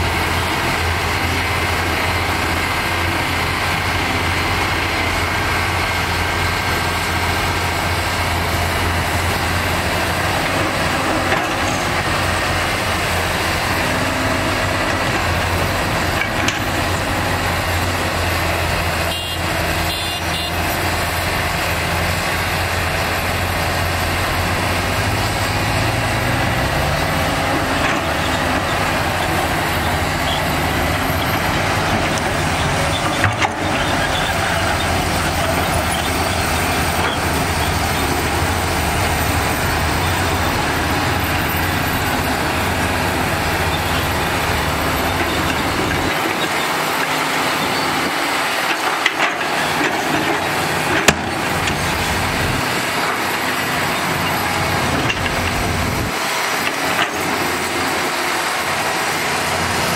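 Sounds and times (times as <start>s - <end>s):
excavator diesel engine droning: 0.0s - 59.9s.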